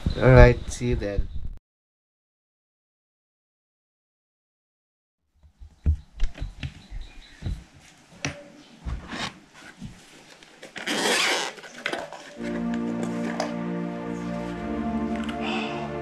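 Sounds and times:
rustling: 0:05.6 - 0:12.6
soft background music: 0:12.4 - 0:16.0.

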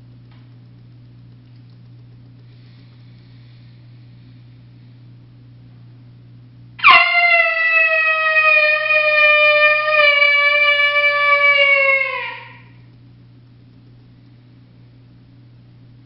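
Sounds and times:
coyote howler call: 0:06.8 - 0:12.8.

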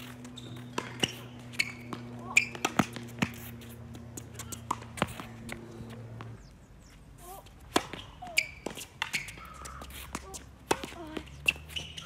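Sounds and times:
tennis ball hit by racket: 0:00.0 - 0:03.5, 0:04.2 - 0:05.6, 0:07.7 - 0:12.0.

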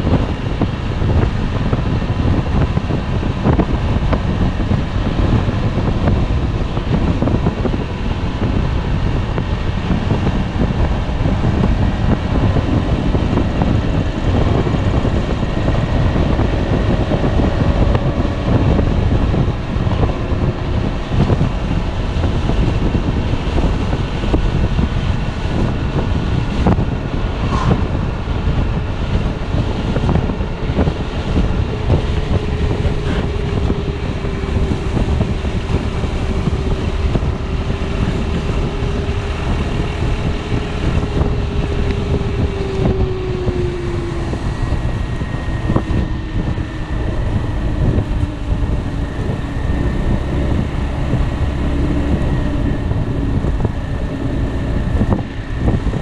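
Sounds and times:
scooter engine droning: 0:00.0 - 0:56.0
wind buffeting microphone: 0:00.0 - 0:56.0.

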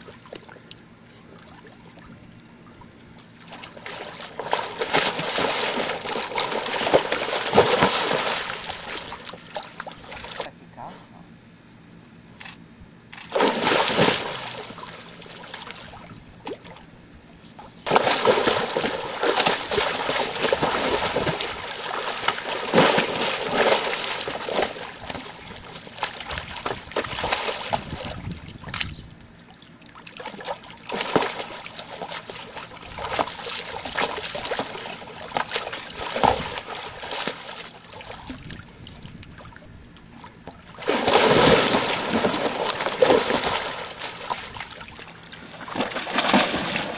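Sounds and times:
water splashing in metal tank: 0:03.5 - 0:10.4, 0:13.3 - 0:16.0, 0:17.9 - 0:28.2, 0:30.2 - 0:38.2, 0:40.8 - 0:44.4, 0:45.7 - 0:46.9.

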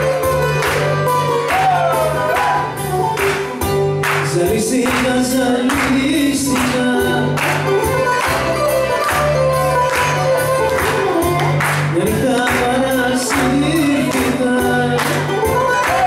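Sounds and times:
regular beat: 0:00.0 - 0:16.0
sustained bass: 0:00.0 - 0:16.0
person singing: 0:04.2 - 0:08.4, 0:11.8 - 0:16.0.

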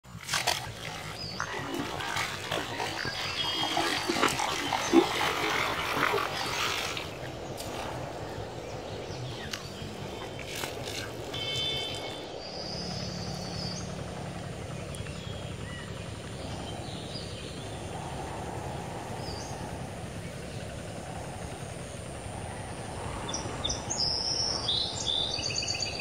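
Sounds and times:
low outdoor rumble: 0:00.0 - 0:26.0
faint bird chirps: 0:08.4 - 0:21.6.

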